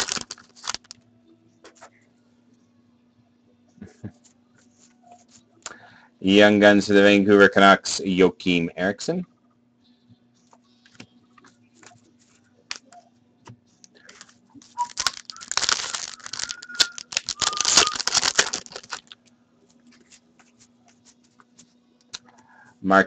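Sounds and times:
cards clicking and rustling: 0.0s - 1.0s, 13.8s - 19.2s
wrapper tearing and crinkling: 0.0s - 1.0s, 14.1s - 19.2s.

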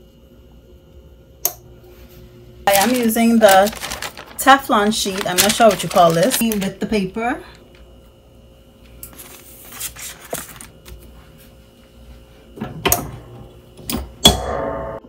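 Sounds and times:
paper rustling and crinkling: 2.7s - 7.0s, 9.1s - 11.2s.

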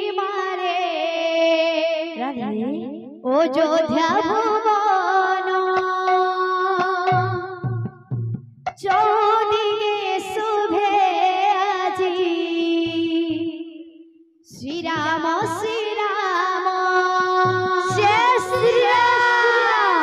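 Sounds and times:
woman singing amplified: 0.0s - 7.8s, 8.8s - 13.8s, 14.5s - 20.0s
low regular beats: 5.8s - 9.4s, 17.2s - 20.0s.

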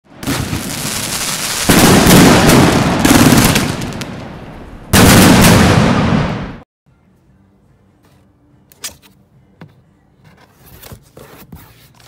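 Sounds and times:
fireworks crackling and hissing: 0.2s - 6.2s.

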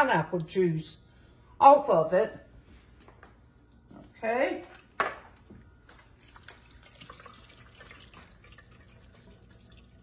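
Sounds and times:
juice dripping into metal bowl: 5.9s - 10.0s.

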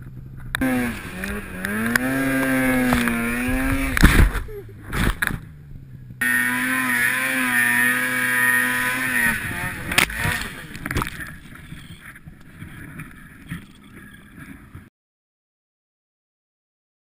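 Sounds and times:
snowmobile engine at high revs: 0.0s - 12.2s.

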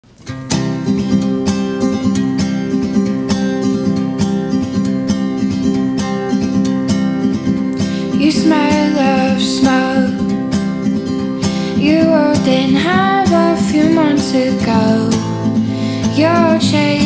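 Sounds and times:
strummed acoustic guitar: 0.0s - 17.0s
woman singing: 7.8s - 17.0s.

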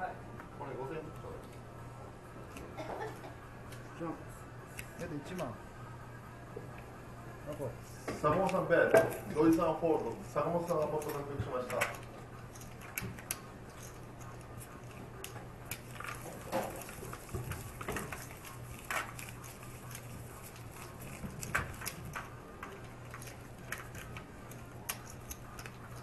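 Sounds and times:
low steady hum: 0.0s - 26.0s
poker chips clicking: 23.1s - 26.0s.

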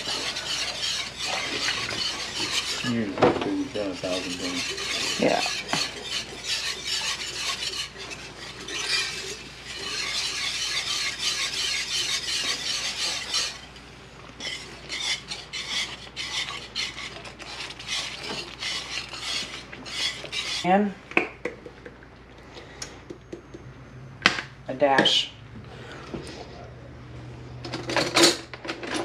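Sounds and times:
whisk scraping in skillet: 0.0s - 21.0s.

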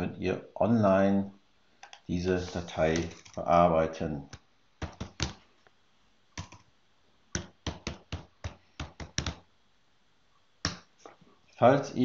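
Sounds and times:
computer keyboard typing: 2.7s - 3.4s, 4.3s - 5.4s, 6.4s - 6.7s, 7.4s - 9.4s.

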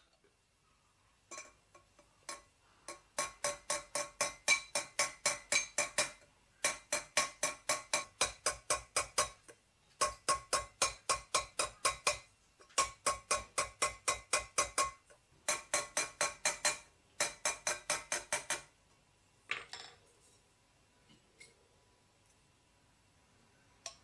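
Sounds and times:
hammer ringing on silver: 2.3s - 9.4s.

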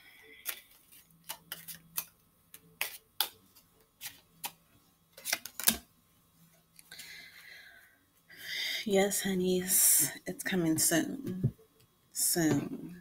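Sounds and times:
cards being shuffled: 0.4s - 4.6s, 5.2s - 5.8s.

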